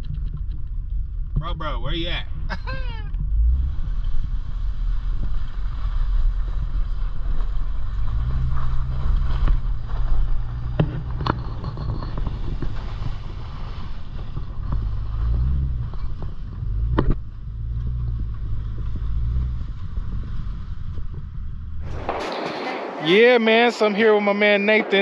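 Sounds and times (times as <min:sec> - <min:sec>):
car engine running: 0:00.0 - 0:22.1.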